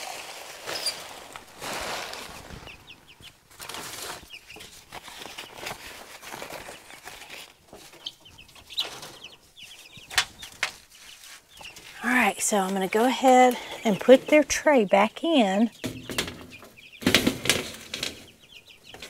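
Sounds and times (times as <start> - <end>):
sheets rustling: 0.0 - 8.1, 10.4 - 15.7
chicks peeping: 0.6 - 19.0.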